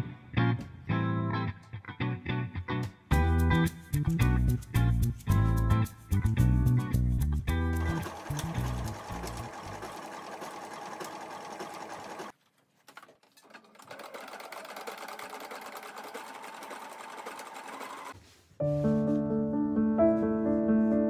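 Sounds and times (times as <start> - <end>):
sewing machine running: 7.7 - 12.4, 13.4 - 18.2.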